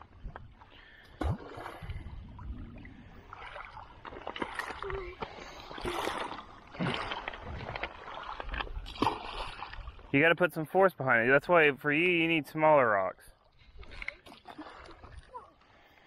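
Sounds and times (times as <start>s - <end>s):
low rumble: 1.9s - 3.8s.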